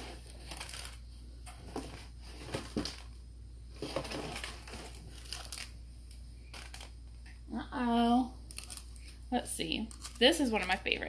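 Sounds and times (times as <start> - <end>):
packing material crinkling: 0.0 - 7.0, 8.4 - 9.2.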